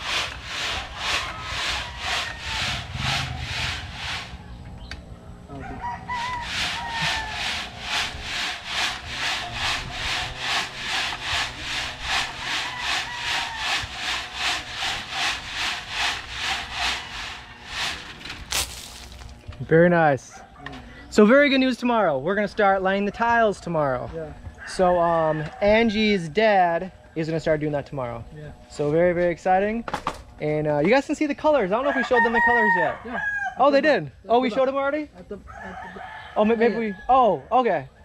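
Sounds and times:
gravel scraping in wire sieve: 0.0s - 4.5s, 6.1s - 19.4s
rooster crowing: 0.3s - 4.6s, 5.5s - 8.2s, 11.4s - 14.7s, 24.6s - 26.2s, 31.8s - 33.6s, 35.5s - 37.4s.

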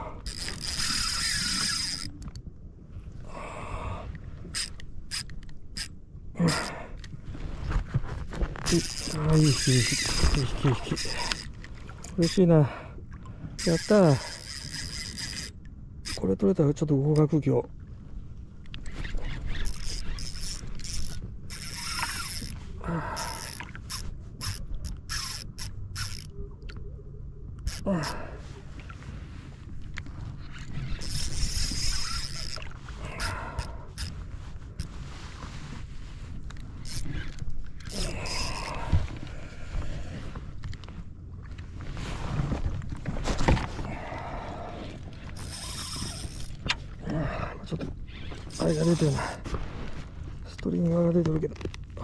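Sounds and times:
fishing reel gears whirring: 0.2s - 2.4s, 4.5s - 5.9s, 8.7s - 11.6s, 13.6s - 16.2s, 18.9s - 26.3s, 27.6s - 28.1s, 30.7s - 34.1s, 36.8s - 38.8s, 45.3s - 46.6s, 48.1s - 49.4s
reel clicks: 0.2s - 2.5s, 4.1s - 7.2s, 8.6s - 12.5s, 13.6s - 17.4s, 18.6s - 22.6s, 23.2s - 26.8s, 27.6s - 27.9s, 29.8s - 34.9s, 36.4s - 39.3s, 45.3s - 47.0s, 47.7s - 49.4s.

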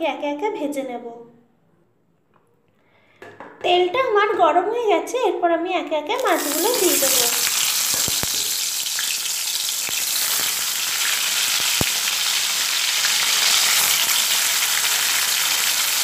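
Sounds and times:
fish sizzling in oil: 6.2s - 16.0s.

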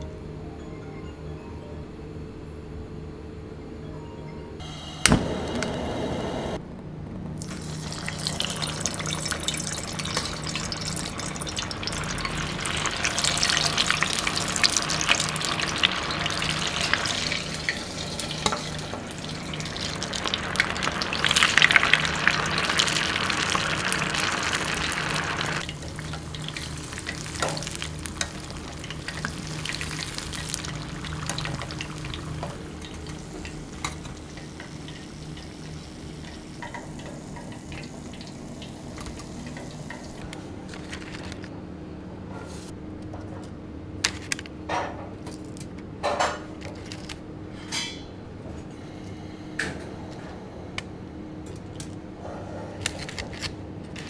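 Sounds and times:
steady low hum: 1.8s - 40.8s
food sizzling and crackling: 7.4s - 41.5s.

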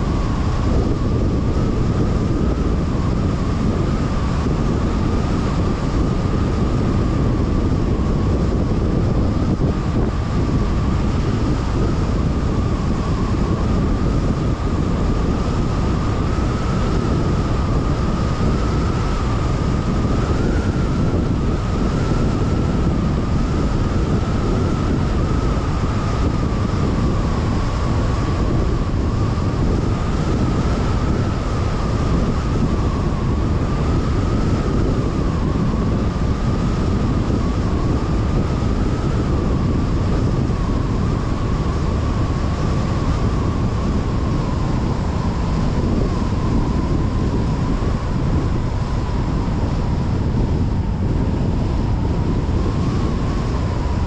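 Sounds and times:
car road and tyre noise: 0.0s - 54.0s
thin steady whine: 0.0s - 54.0s.

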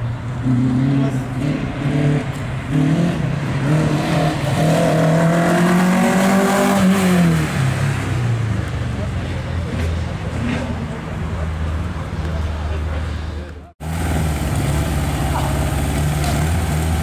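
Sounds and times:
car engine revving: 0.3s - 8.5s, 13.8s - 17.0s.

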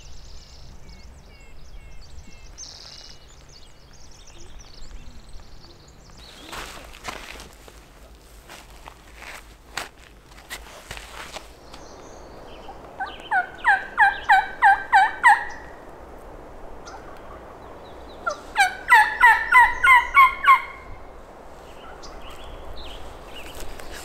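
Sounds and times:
turkey yelping: 12.7s - 15.7s, 18.2s - 20.9s.

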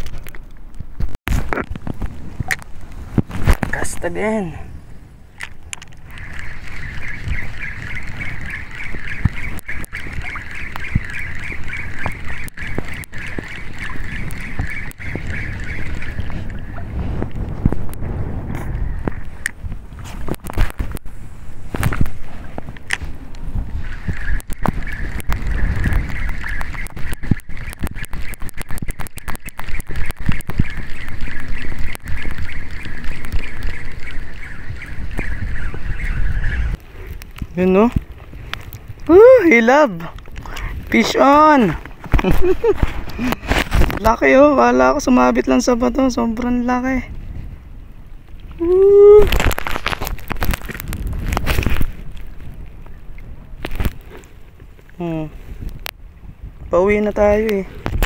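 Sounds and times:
wind buffeting microphone: 0.0s - 58.0s
fishing rod handling clicks: 5.4s - 6.5s
fishing reel gear whirr: 5.4s - 16.9s
fishing reel whirring: 5.4s - 17.0s, 23.8s - 36.8s.

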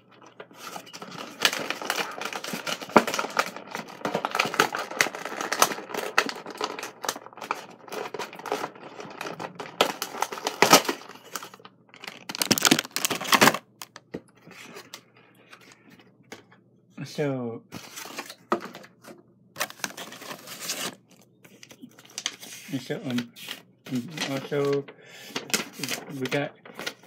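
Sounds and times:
cardboard packaging tearing: 0.6s - 14.0s, 19.6s - 21.0s.

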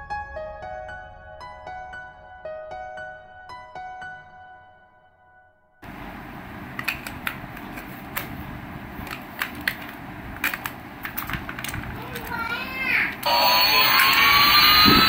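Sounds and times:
plastic clicks and taps: 9.0s - 12.3s.

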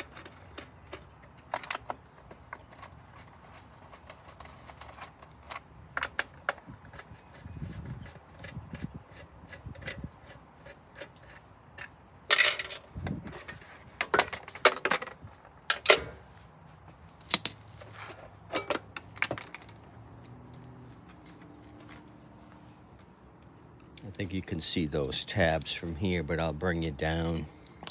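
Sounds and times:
hand tools clattering on concrete: 0.0s - 16.3s, 17.4s - 20.4s
plastic housing set down: 12.3s - 16.2s.

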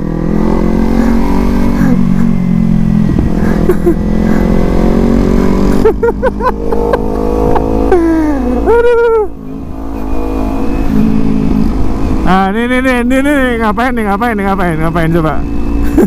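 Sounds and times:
motorcycle engine revving: 0.0s - 16.0s
wind rush: 2.0s - 3.6s.

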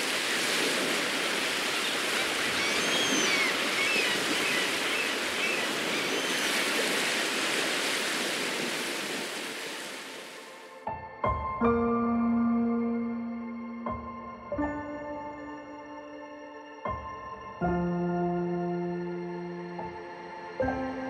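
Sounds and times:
surf breaking on beach: 0.0s - 10.4s
faint bird chirps: 1.8s - 6.5s.

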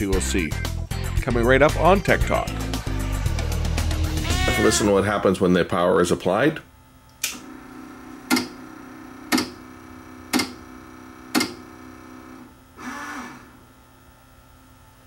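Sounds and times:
motor humming: 2.5s - 4.8s.

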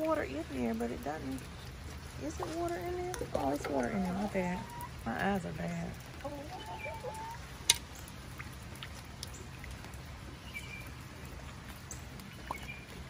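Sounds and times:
light rain dripping: 0.0s - 13.0s
chicken chirps: 6.2s - 7.4s.

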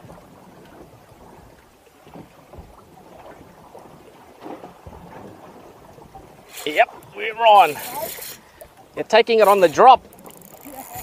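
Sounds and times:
water lapping against boat hull: 0.0s - 11.0s.

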